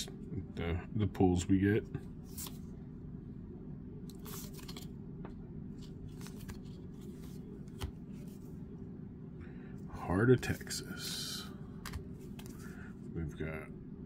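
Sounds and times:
steady low hum: 0:00.0 - 0:14.0
cards swishing against cards: 0:02.2 - 0:02.7, 0:04.1 - 0:04.9, 0:05.7 - 0:08.6, 0:11.8 - 0:12.7.

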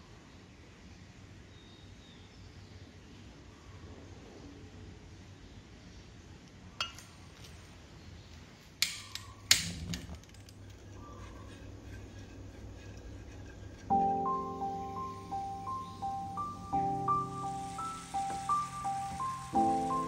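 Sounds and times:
low steady hum: 0:06.6 - 0:20.0
utensils clinking against pan: 0:06.8 - 0:07.2, 0:08.8 - 0:15.9.

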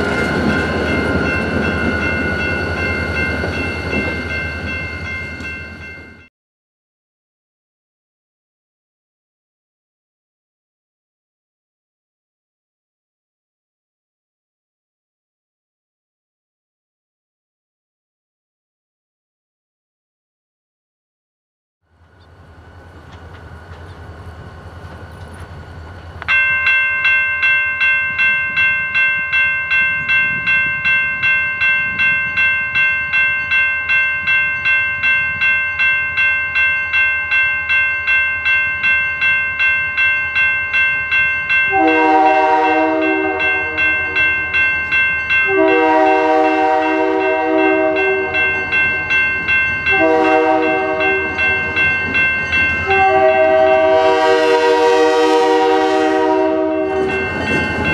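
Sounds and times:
crossing warning bell ringing: 0:00.0 - 0:06.3, 0:22.1 - 0:57.9
locomotive air horn blasts: 0:41.7 - 0:44.3, 0:45.5 - 0:48.5, 0:49.9 - 0:51.6, 0:52.8 - 0:57.3.

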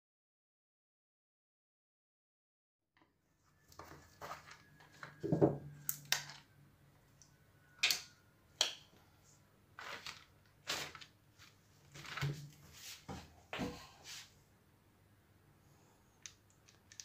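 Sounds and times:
paper and glove rustling: 0:03.6 - 0:05.2, 0:09.8 - 0:13.2.

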